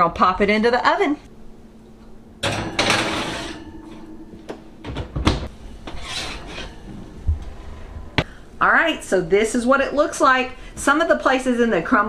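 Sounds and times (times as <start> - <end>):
glass dish scraping on oven rack: 2.4 - 4.4, 5.8 - 7.2.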